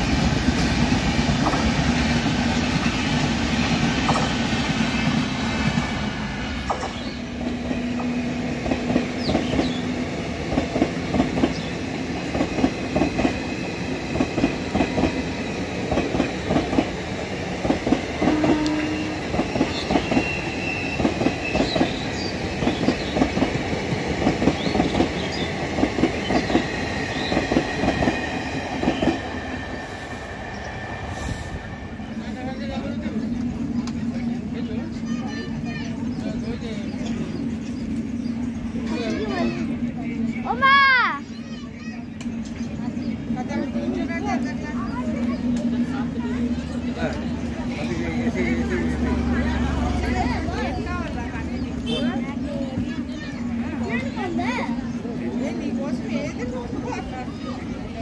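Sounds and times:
train wheels clattering: 0.0 - 30.7
train rumble: 0.0 - 58.0.

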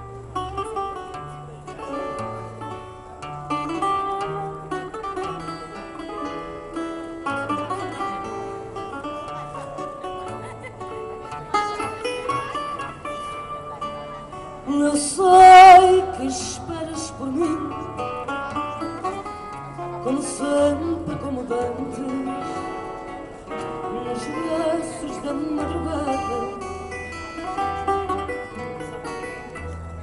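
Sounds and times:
plucked acoustic guitar: 0.0 - 30.0
woman singing into a microphone: 14.6 - 18.0, 20.0 - 23.1, 23.8 - 26.8.

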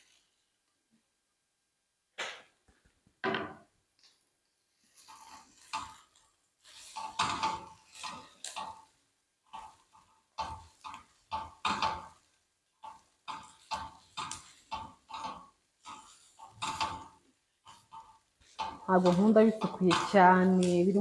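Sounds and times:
spatula knocking on frying pan: 6.9 - 8.9, 9.5 - 21.0.

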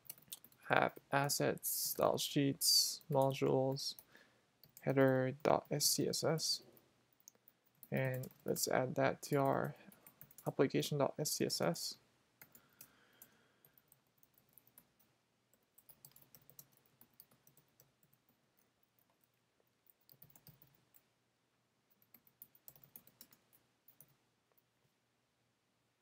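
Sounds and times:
computer keyboard typing: 0.0 - 1.0, 2.9 - 5.8, 7.1 - 8.6, 9.2 - 10.6, 12.4 - 21.1, 21.9 - 24.2.

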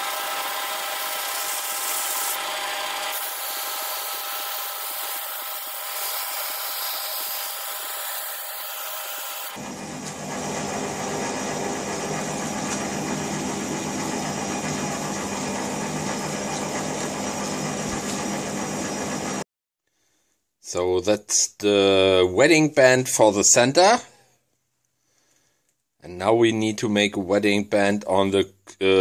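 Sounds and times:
lathe humming: 0.0 - 19.4.

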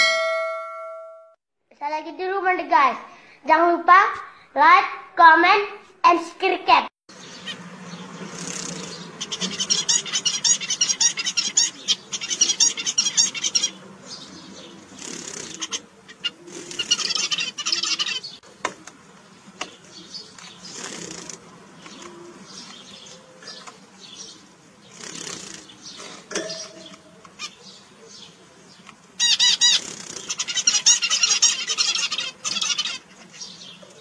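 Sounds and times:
zebra finches chattering song: 7.1 - 34.0.

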